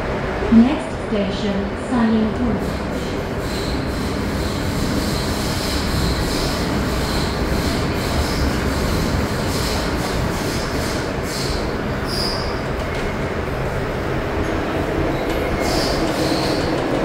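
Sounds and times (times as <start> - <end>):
train wheels and motors rumbling: 0.0 - 17.0
high wheel squeal: 11.3 - 12.6, 15.6 - 16.7.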